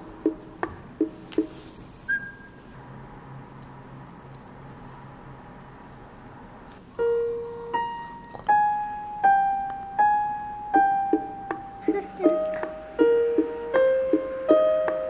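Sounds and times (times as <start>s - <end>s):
slow keyboard melody: 6.8s - 15.0s.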